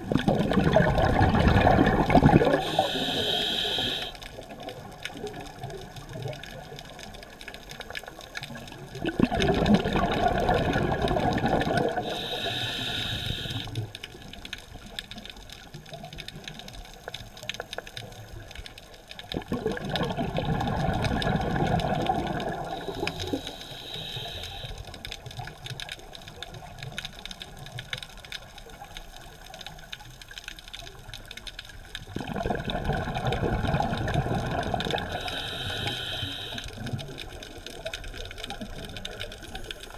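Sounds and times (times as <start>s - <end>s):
exhaled bubbles underwater: 0.0s - 18.5s, 19.2s - 29.6s, 31.8s - 39.9s
regulator hiss: 2.4s - 4.2s, 11.9s - 13.8s, 22.8s - 25.0s, 35.0s - 36.9s.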